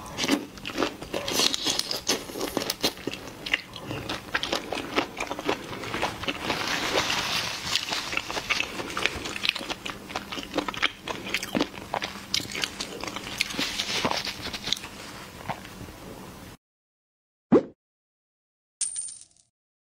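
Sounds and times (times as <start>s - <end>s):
crunchy chewing: 0.0s - 15.8s.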